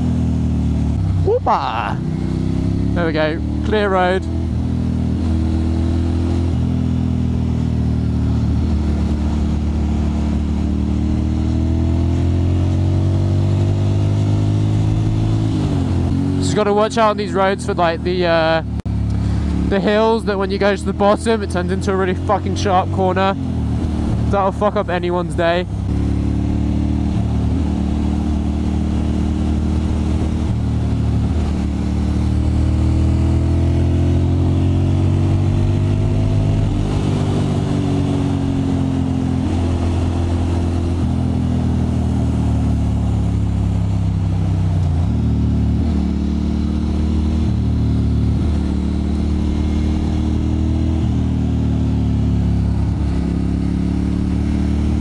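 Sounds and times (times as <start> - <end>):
motorcycle engine accelerating: 0.0 - 55.0.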